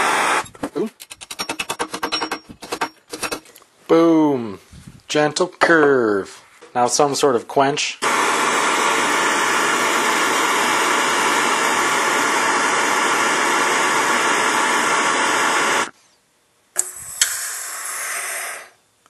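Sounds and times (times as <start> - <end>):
torch flame hissing: 0.0 - 0.5, 8.0 - 15.9, 16.8 - 18.8.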